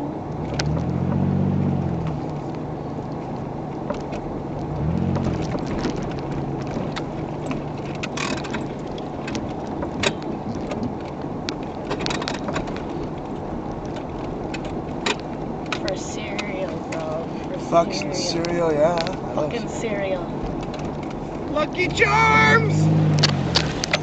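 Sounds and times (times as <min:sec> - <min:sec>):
road noise: 0:00.0 - 0:24.0
car engine revving: 0:00.3 - 0:11.0, 0:13.6 - 0:24.0
car body knocks and clatters: 0:05.1 - 0:15.9.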